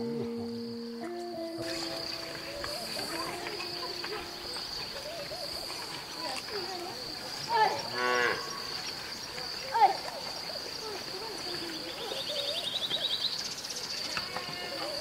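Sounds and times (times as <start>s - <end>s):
high-pitched insect drone: 0.0s - 7.8s.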